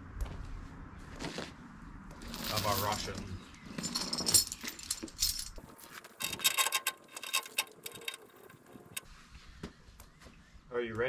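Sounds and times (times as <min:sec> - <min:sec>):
metal chain clinking and rattling: 0:02.2 - 0:09.0.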